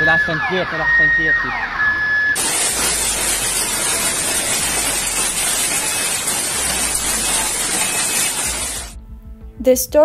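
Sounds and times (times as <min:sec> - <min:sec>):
heavy rain pouring: 0:02.4 - 0:09.0.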